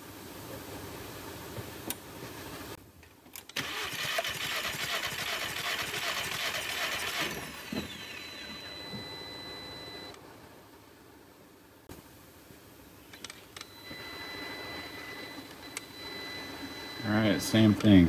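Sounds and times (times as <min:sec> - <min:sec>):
starter cranking engine: 0:03.6 - 0:08.0
steady high tone: 0:07.1 - 0:10.2, 0:13.6 - 0:18.0.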